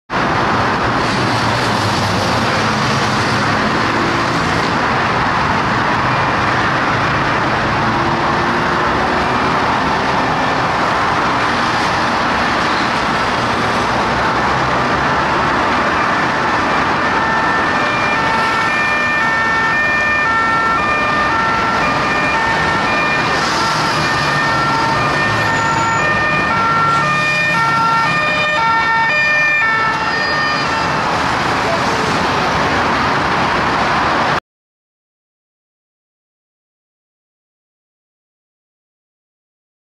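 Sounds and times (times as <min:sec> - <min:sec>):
heavy motorway traffic: 0:00.1 - 0:34.4
two-tone police sirens: 0:02.4 - 0:34.4.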